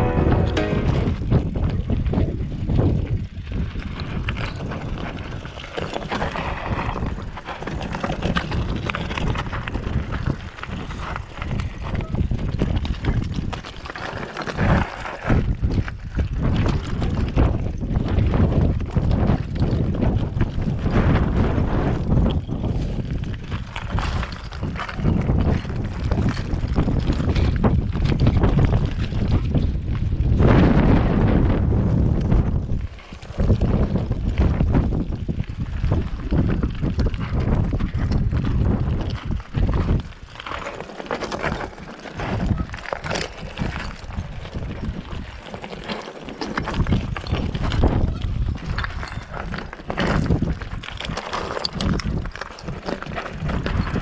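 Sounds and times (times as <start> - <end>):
bike rattling: 0.0 - 54.0
wind buffeting microphone: 0.0 - 54.0
bike tyres crunching over stones: 0.2 - 31.2, 31.8 - 54.0
tyres crunching over stones: 32.9 - 54.0.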